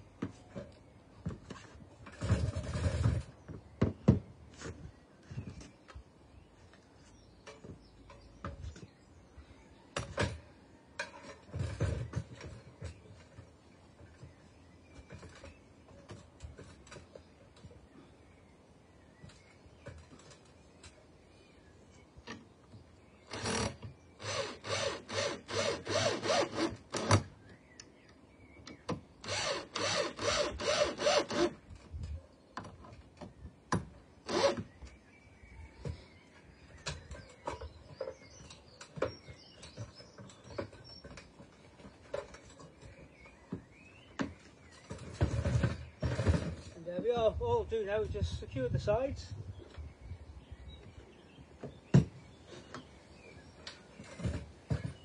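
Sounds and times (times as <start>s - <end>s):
cordless drill driving screws: 23.3s - 27.3s, 29.2s - 31.6s, 34.3s - 34.7s.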